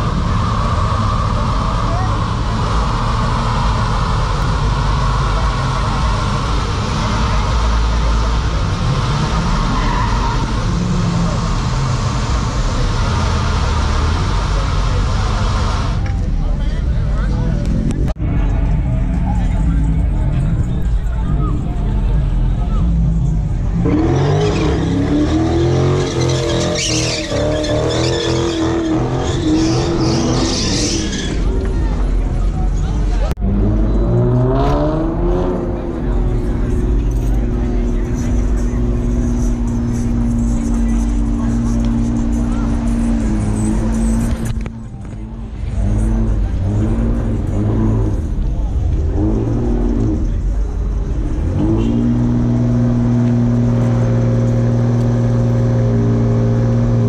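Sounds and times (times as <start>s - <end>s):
tyre screech: 0.0s - 16.0s, 23.9s - 32.2s, 37.0s - 44.8s
car engine at high revs: 0.0s - 16.3s, 22.1s - 57.0s.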